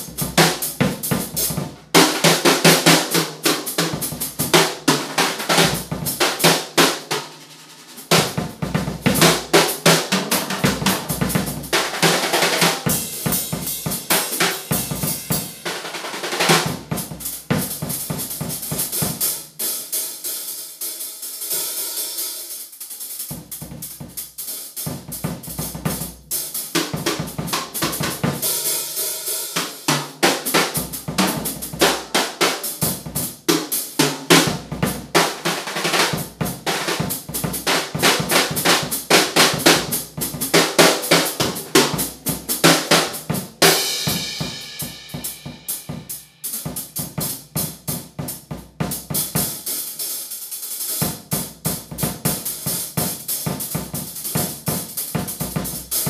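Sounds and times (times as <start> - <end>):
drum kit groove: 0.0 - 56.0
bass drum beats: 8.1 - 15.6.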